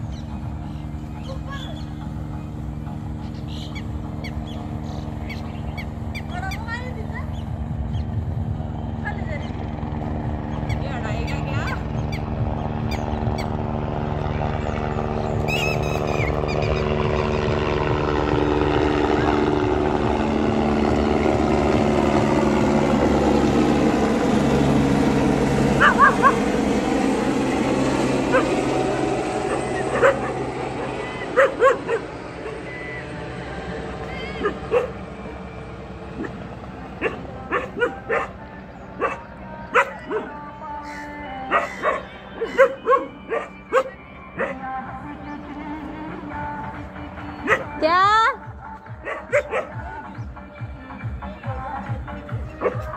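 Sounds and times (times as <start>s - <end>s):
helicopter rotor and engine drone: 0.0s - 52.9s
dog barking: 25.8s - 26.4s, 28.3s - 28.5s, 29.5s - 30.4s, 31.3s - 32.1s, 34.4s - 35.0s, 37.0s - 38.4s, 39.0s - 40.4s, 41.5s - 44.6s, 47.4s - 47.7s, 49.0s - 49.8s, 52.6s - 52.9s.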